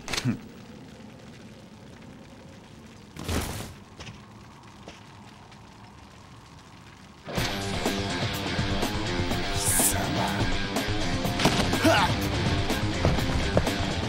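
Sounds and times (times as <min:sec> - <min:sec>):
rock music: 0:07.3 - 0:14.0.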